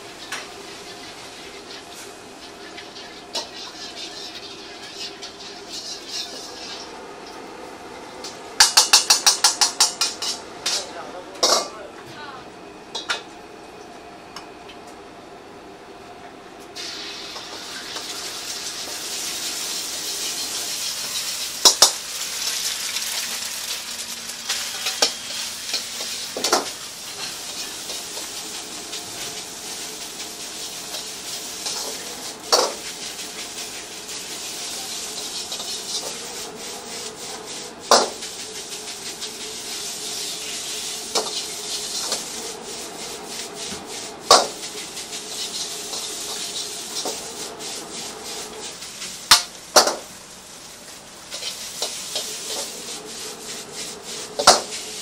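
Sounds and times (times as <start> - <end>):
rice and egg sizzling in a wok: 0.0 - 7.9, 8.6 - 10.5, 16.8 - 55.0
metal ladle scraping wok: 0.2 - 6.9.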